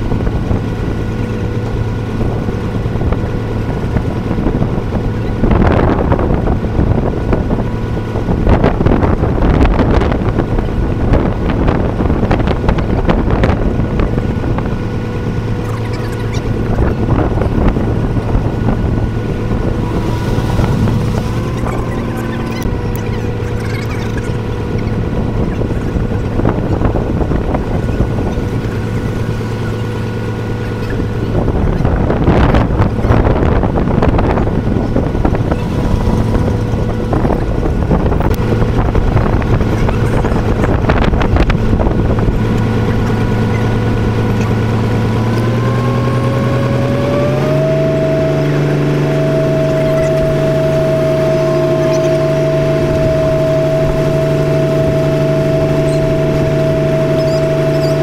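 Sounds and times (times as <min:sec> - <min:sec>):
boat engine humming: 0:00.0 - 0:58.0
rushing noise: 0:17.2 - 0:24.7.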